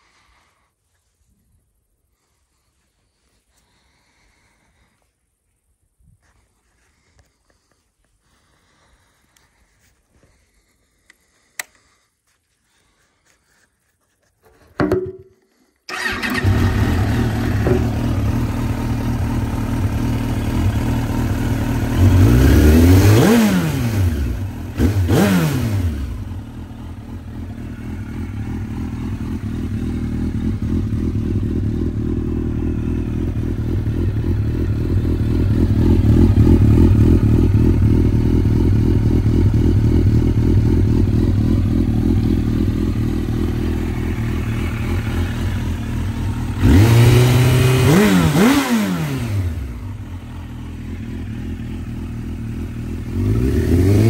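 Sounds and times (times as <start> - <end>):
motorcycle engine idling and revving: 0.0 - 5.6, 6.2 - 54.0.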